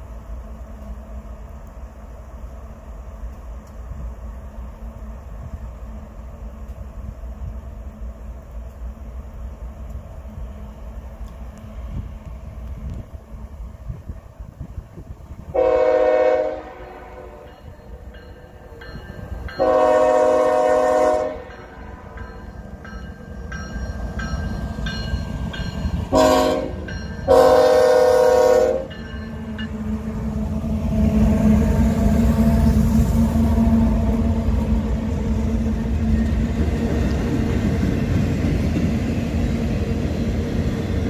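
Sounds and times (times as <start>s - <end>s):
locomotive low rumble: 0.0s - 41.0s
locomotive air horn blasts: 15.5s - 17.5s, 19.6s - 21.6s, 26.1s - 28.9s.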